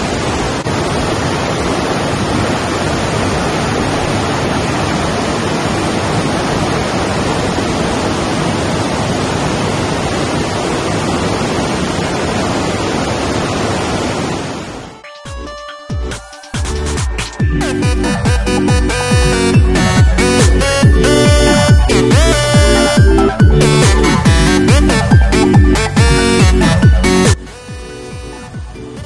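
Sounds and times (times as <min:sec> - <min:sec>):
rushing river water: 0:00.0 - 0:15.0.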